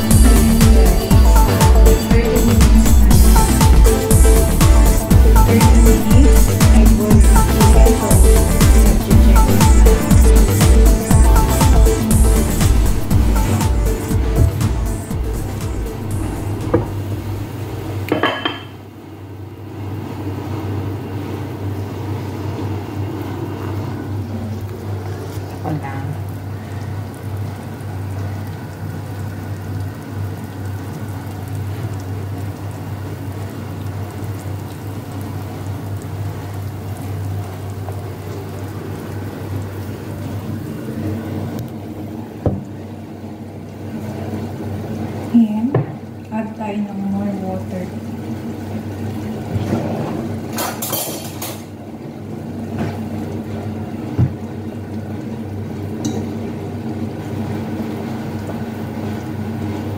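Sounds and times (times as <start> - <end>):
constant low hum: 0.0 - 31.0
pot boiling with rushing hiss: 0.0 - 59.9.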